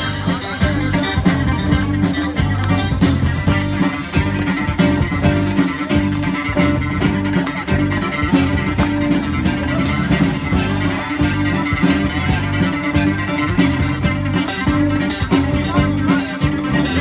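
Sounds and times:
bass guitar line: 0:00.0 - 0:17.0
drum kit steady beat: 0:00.0 - 0:17.0.

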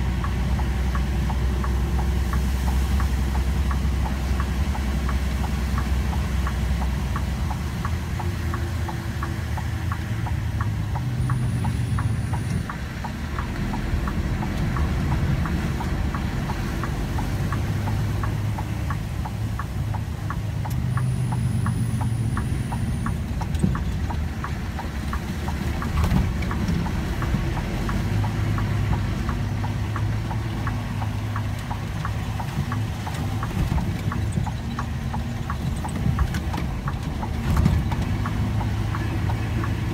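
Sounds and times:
vehicle engine running low: 0:00.0 - 0:39.9
regular light ticking: 0:00.1 - 0:39.9.

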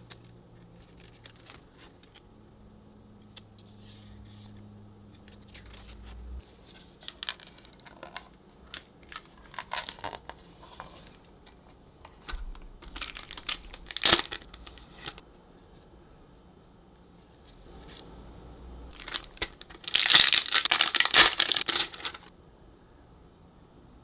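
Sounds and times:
paper and cardboard rustling: 0:00.0 - 0:02.2, 0:09.1 - 0:15.2, 0:18.9 - 0:22.3.

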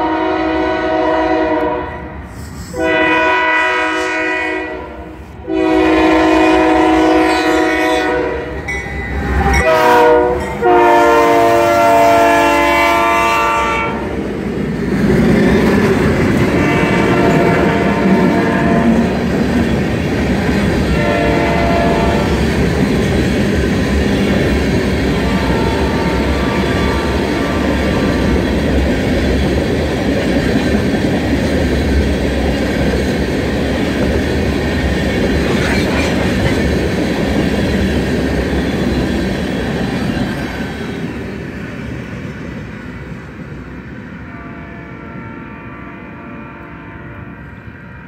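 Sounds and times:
locomotive air horn blasts: 0:00.0 - 0:02.1, 0:02.7 - 0:08.7, 0:09.4 - 0:14.1, 0:16.5 - 0:19.1, 0:20.8 - 0:22.4, 0:25.1 - 0:28.4, 0:44.3 - 0:48.0
train rumbling on rails: 0:00.0 - 0:48.0.

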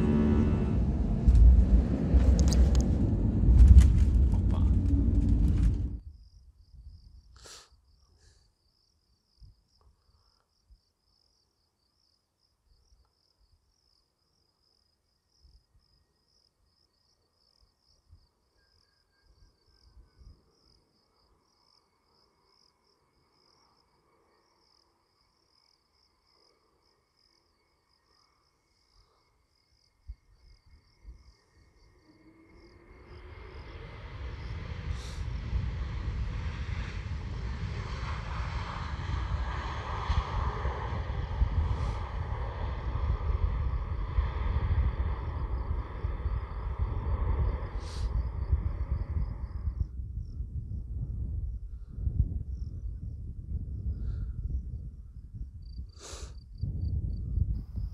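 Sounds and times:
jet engine with rising whine: 0:00.0 - 0:06.0, 0:32.0 - 0:49.9
insects chirping: 0:01.3 - 0:35.8, 0:39.6 - 0:50.6, 0:52.3 - 0:57.9.

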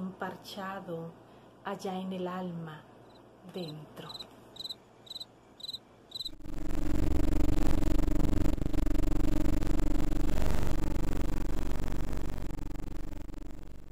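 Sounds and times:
cricket chirping: 0:03.0 - 0:03.2, 0:04.1 - 0:06.4
loud drone with deep rumble: 0:06.3 - 0:13.9.

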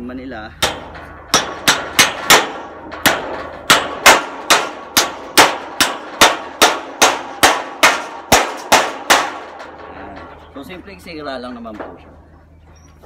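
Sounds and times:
hammer striking nail into metal: 0:00.6 - 0:09.9.

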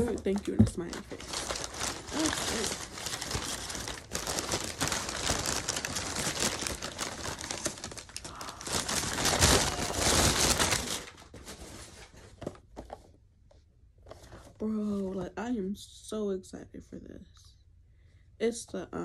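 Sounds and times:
paper crinkling and rustling: 0:00.0 - 0:13.1.

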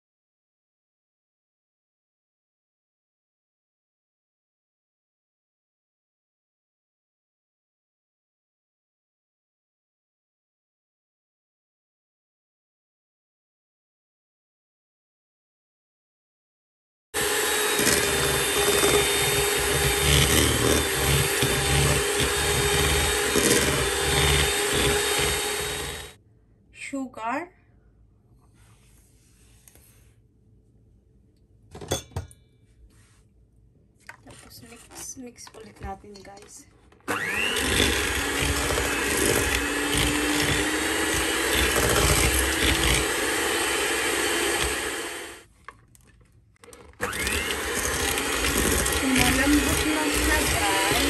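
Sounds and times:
electric hand mixer running: 0:17.2 - 0:26.2, 0:37.1 - 0:45.4, 0:46.7 - 0:51.0.

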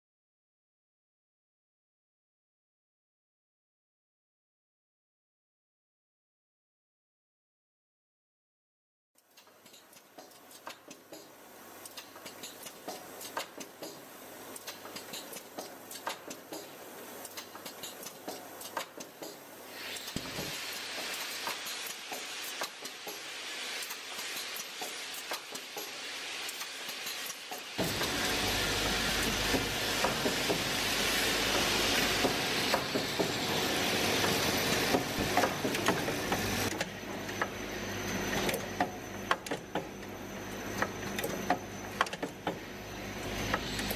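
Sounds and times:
steady hiss: 0:11.0 - 0:36.7
vibratory feeder humming: 0:27.8 - 0:39.2.

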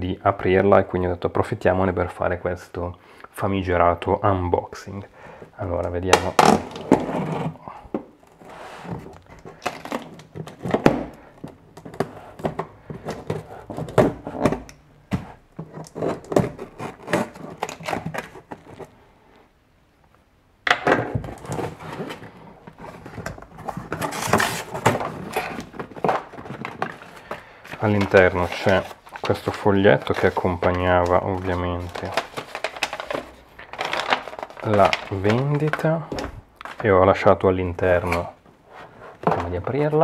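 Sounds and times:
cardboard scraping and rustling: 0:06.2 - 0:07.6, 0:08.2 - 0:19.0, 0:21.1 - 0:36.9.

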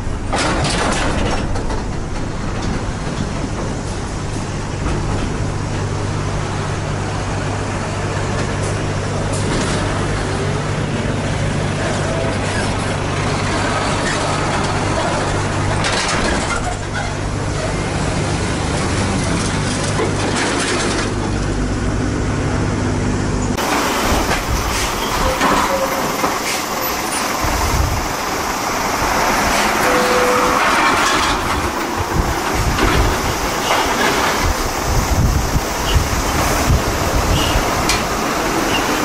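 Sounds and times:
diesel truck engine running: 0:00.0 - 0:39.0
truck rumbling past: 0:00.0 - 0:39.0
short squeal: 0:24.7 - 0:27.3, 0:29.6 - 0:30.9
wind buffeting microphone: 0:27.2 - 0:29.8, 0:30.5 - 0:39.0.

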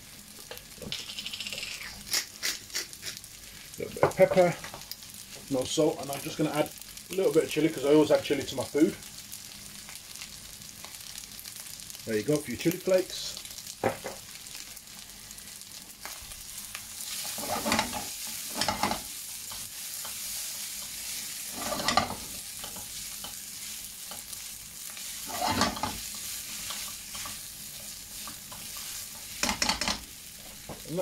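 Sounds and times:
fried rice sizzling in a pan: 0:00.0 - 0:31.0
spatula scraping a pan: 0:17.0 - 0:30.6.

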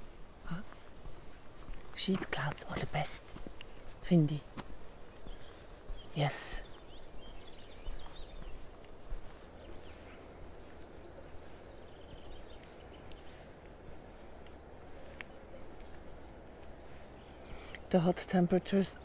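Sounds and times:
crickets chirping: 0:00.0 - 0:19.0
low rumble of wind: 0:00.0 - 0:19.0
faint bird chirps: 0:02.4 - 0:13.5.

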